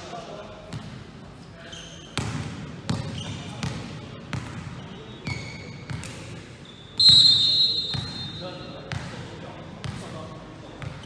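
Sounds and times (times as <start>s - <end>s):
ball bouncing on gym floor: 5.8s - 6.3s
referee's whistle: 6.6s - 8.7s.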